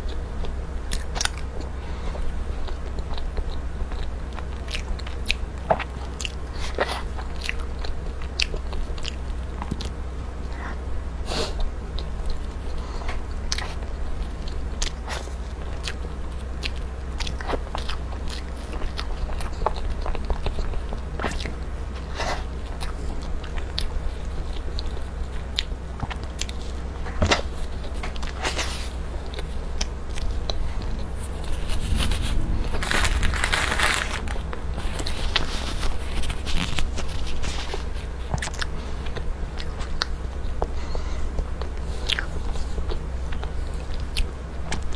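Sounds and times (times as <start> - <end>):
low hum: 0.0 - 44.9
wet chewing and lip smacks: 2.6 - 10.0, 11.6 - 21.6, 22.4 - 32.8, 34.3 - 40.7, 41.5 - 44.9
rustling: 30.6 - 38.3.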